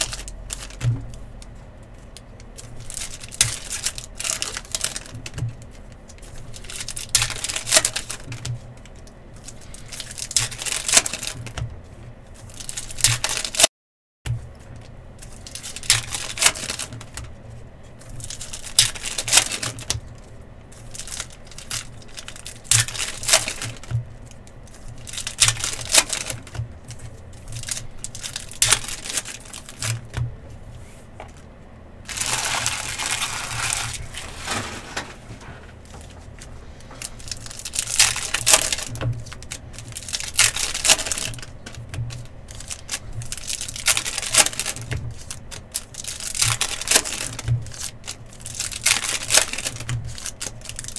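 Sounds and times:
card packs tearing open: 0.0s - 0.8s, 2.6s - 5.3s, 6.2s - 8.4s, 9.4s - 11.5s, 12.5s - 13.7s, 15.3s - 17.1s, 18.2s - 20.0s, 20.8s - 23.9s, 24.7s - 26.6s, 27.4s - 30.1s, 32.1s - 50.9s
foil wrappers crinkling: 0.0s - 11.6s, 12.3s - 13.7s, 14.6s - 17.4s, 18.0s - 31.5s, 32.1s - 50.9s.

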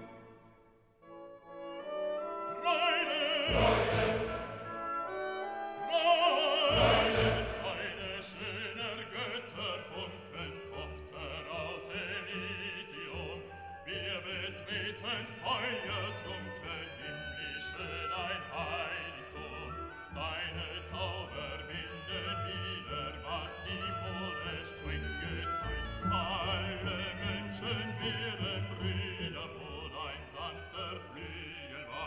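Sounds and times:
classical orchestra playing: 0.0s - 32.0s
operatic singing with vibrato: 1.8s - 32.0s.

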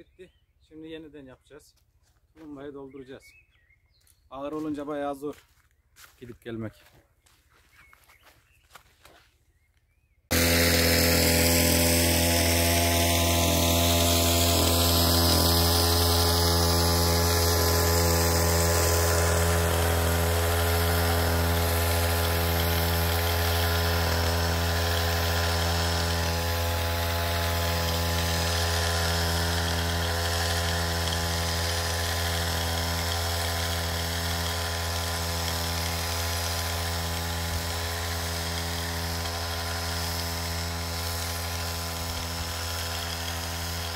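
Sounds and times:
crop sprayer motor humming: 10.3s - 43.9s.

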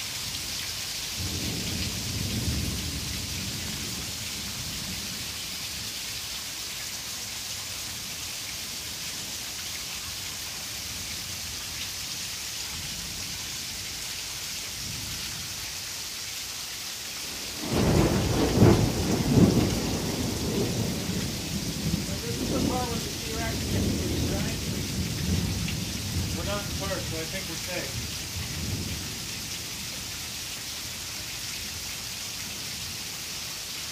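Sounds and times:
heavy rain falling: 0.0s - 33.9s
thunder rumbling: 1.2s - 4.2s, 17.3s - 29.3s.

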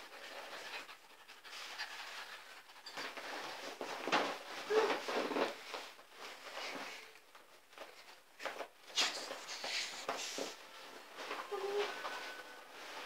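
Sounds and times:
scuffling and rustling on inflatable: 3.2s - 13.0s.

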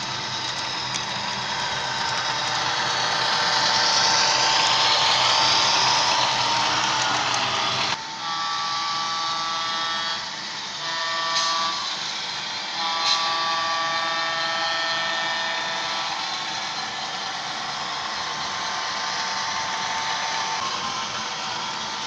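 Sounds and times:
diesel engine sound: 0.0s - 8.0s
model train air horn: 0.5s - 16.2s.

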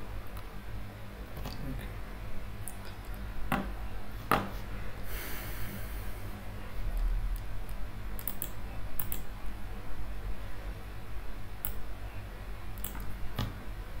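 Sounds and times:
low steady hum: 0.0s - 14.0s
computer clicks and taps: 8.2s - 9.3s, 12.8s - 13.6s.

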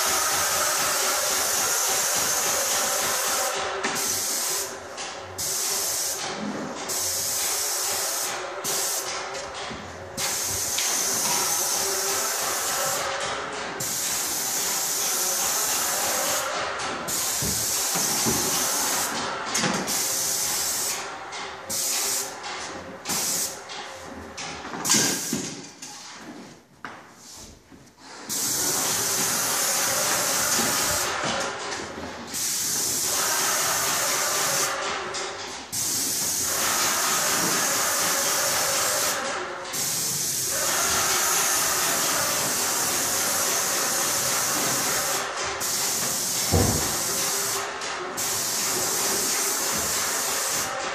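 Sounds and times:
paint spray gun hissing: 4.0s - 4.7s, 35.7s - 47.6s, 48.2s - 50.7s.

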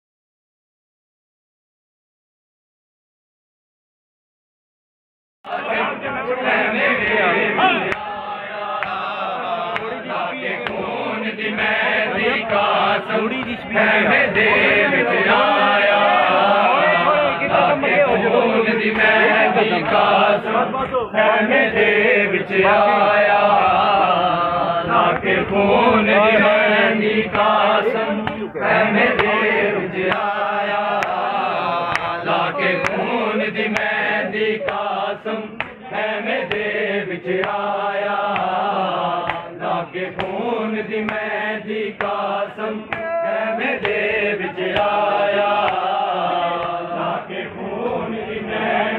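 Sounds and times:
crowd of men chanting: 5.5s - 48.9s
chest-beating slaps: 8.8s - 9.1s, 9.7s - 10.9s, 12.4s - 13.7s, 28.2s - 28.5s, 30.1s - 30.4s, 31.0s - 31.2s, 35.5s - 36.8s, 37.4s - 37.6s, 38.3s - 38.6s, 39.2s - 40.4s, 41.0s - 41.3s, 42.9s - 45.0s, 45.6s - 45.9s.

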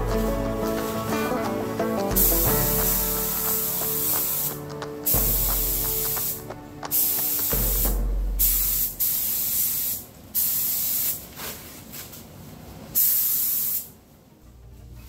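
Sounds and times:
spray gun hissing: 2.1s - 4.6s, 5.2s - 11.2s, 13.0s - 13.9s.

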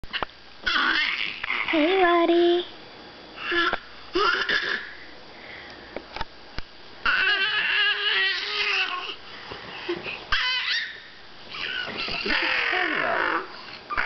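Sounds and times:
baby babbling and squealing: 0.7s - 2.0s, 7.1s - 9.2s, 10.3s - 14.0s.

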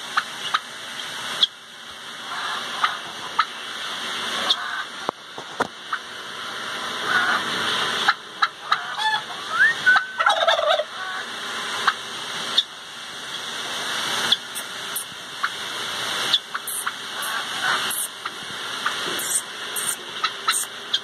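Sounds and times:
steady hiss: 0.0s - 21.0s
turkey gobbling: 0.1s - 0.7s, 2.2s - 3.6s, 4.4s - 5.1s, 7.0s - 12.7s, 16.3s - 21.0s
short squeaky calls: 19.2s - 21.0s.

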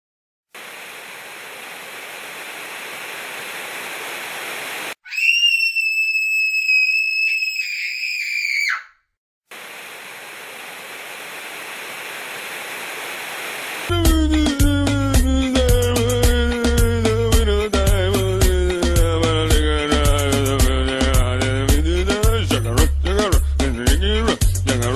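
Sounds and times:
shrill scream: 5.0s - 9.1s
television static hiss: 9.6s - 13.9s.

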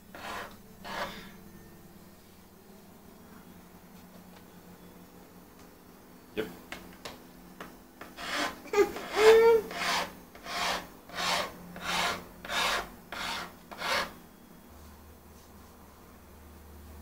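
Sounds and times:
file rasping on metal: 0.0s - 1.3s, 8.0s - 14.2s.

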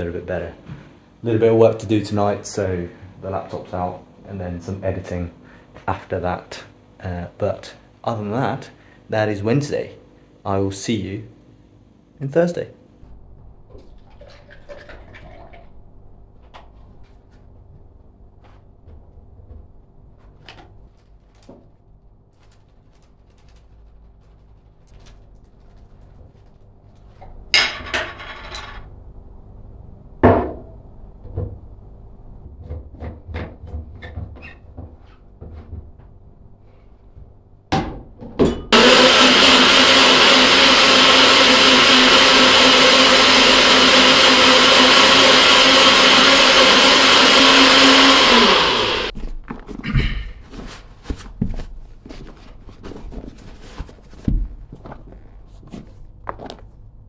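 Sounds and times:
electric blender running: 38.7s - 49.2s.

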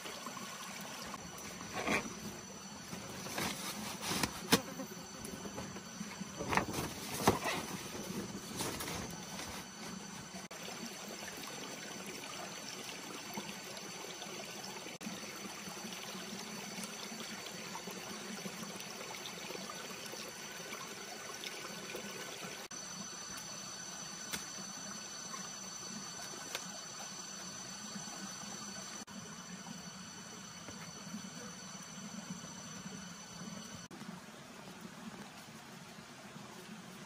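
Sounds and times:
running water rushing: 0.0s - 4.2s
high insect whine: 0.7s - 21.3s, 22.6s - 33.9s.

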